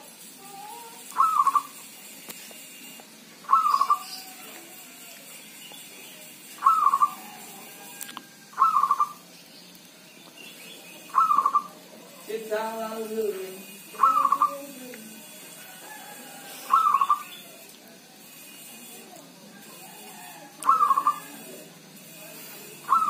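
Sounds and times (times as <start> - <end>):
dove cooing: 0.4 - 1.9, 3.5 - 4.5, 6.6 - 9.2, 11.1 - 12.2, 13.9 - 14.8, 16.5 - 17.6, 20.2 - 21.5, 22.8 - 23.0.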